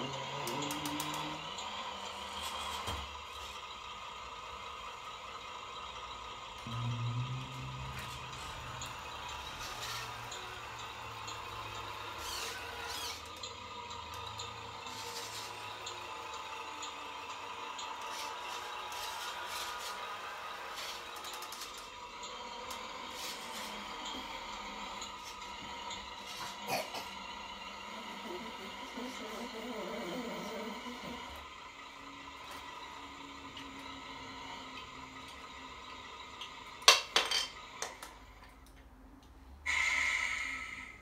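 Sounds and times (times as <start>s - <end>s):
high motor whine: 0.0s - 36.9s
low diesel engine note: 3.6s - 12.5s.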